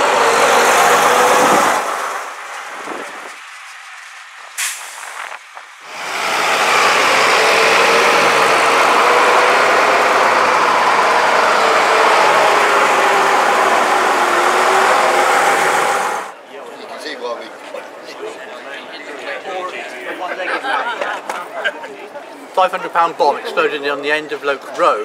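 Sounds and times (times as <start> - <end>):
bus diesel engine running: 0.0 - 16.4.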